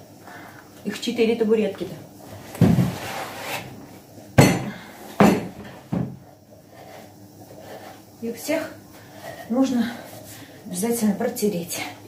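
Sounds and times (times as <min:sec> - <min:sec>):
wooden stools knocking on table: 0:04.4 - 0:06.2.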